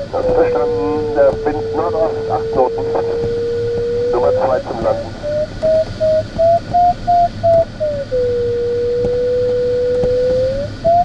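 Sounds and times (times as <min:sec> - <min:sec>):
steady low tone: 0:00.0 - 0:11.0
variometer beeping: 0:00.0 - 0:11.0.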